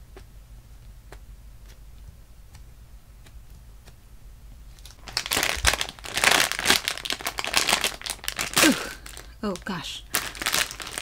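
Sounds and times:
plastic bag crinkling: 4.7 - 11.0.

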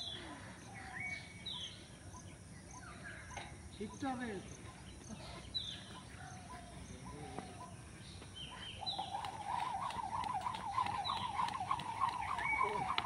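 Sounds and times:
birds chirping: 0.0 - 13.0
rapid wavering bird call: 8.4 - 13.0.

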